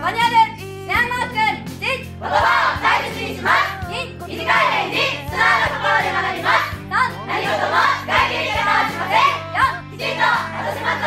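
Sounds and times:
young women singing together: 2.2s - 11.0s.

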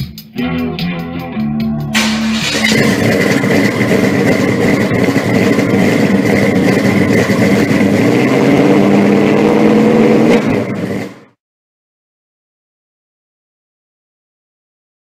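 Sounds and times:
loud engine running: 1.9s - 11.4s.

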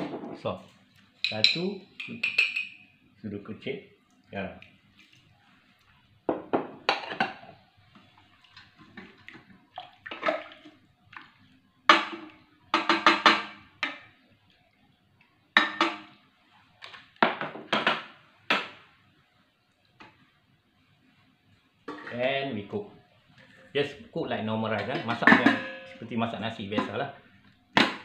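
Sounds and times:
wooden spoon knocking metal pot: 11.9s - 14.0s, 24.8s - 26.0s, 26.7s - 27.0s.

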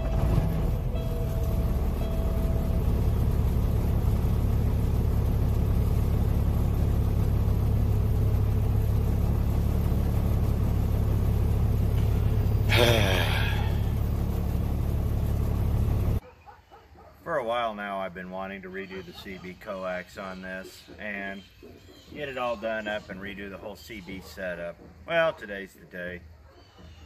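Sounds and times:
diesel engine idling: 0.0s - 16.2s.

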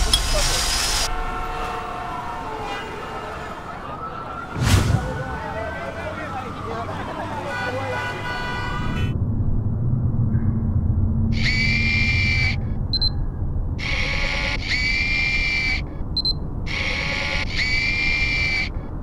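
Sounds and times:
low rumble: 9.0s - 13.8s.

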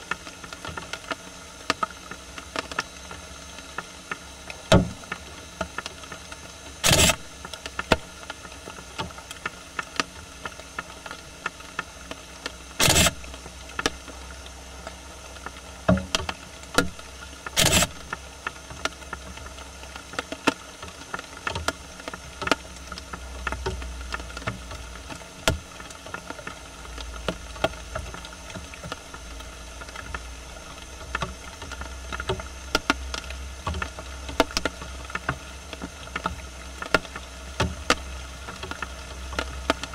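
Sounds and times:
small clicks: 6.8s - 8.4s, 9.3s - 14.0s, 15.4s - 21.8s.

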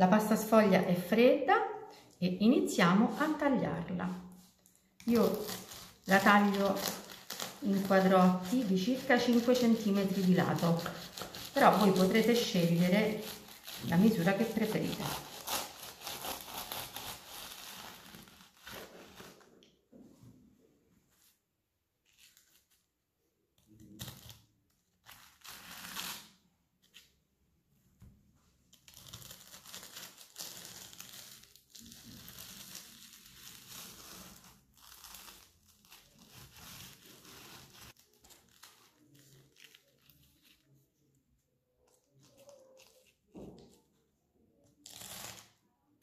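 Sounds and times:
knife crunching through pastry: 5.0s - 19.3s.

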